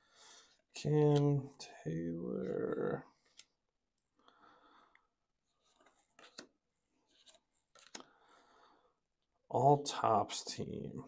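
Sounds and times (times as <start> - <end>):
cards rustling through by hand: 5.4 - 8.2.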